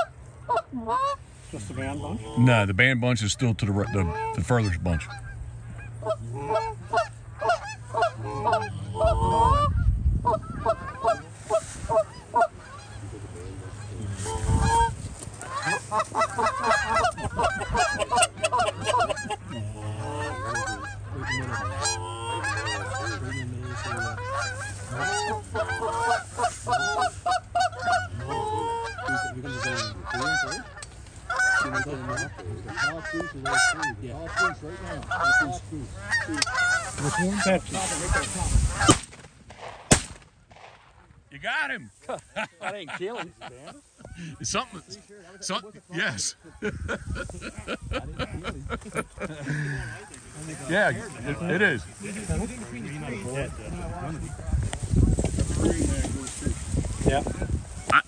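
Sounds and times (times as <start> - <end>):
geese honking: 0.0 - 39.3, 41.1 - 58.0
low rumbles: 34.0 - 41.5.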